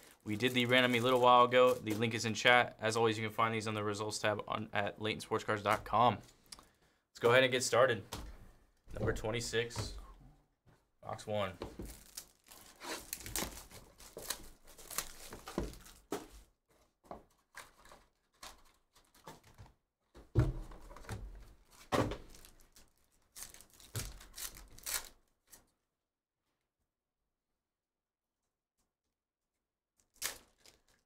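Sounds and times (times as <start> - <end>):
foil wrappers crinkling and ripping: 0.0 - 2.2, 11.8 - 16.2, 17.3 - 19.3, 21.6 - 25.6, 30.0 - 31.0.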